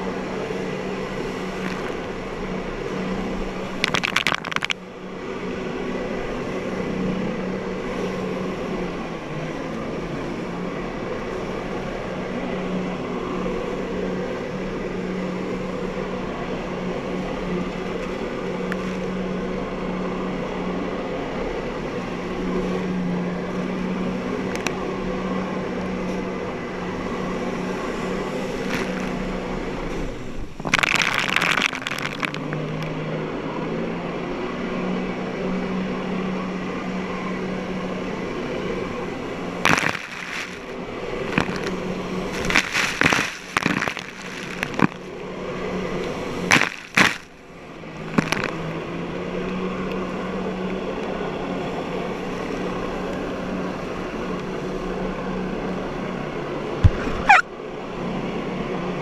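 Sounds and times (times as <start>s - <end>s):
jet ski engine running: 0.0s - 59.0s
spray splashing: 39.7s - 40.7s, 41.3s - 45.0s.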